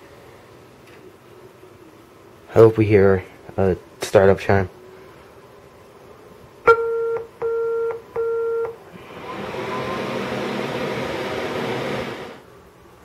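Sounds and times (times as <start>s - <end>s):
short error beeps: 6.7s - 8.8s
computer fan rushing: 8.9s - 12.5s.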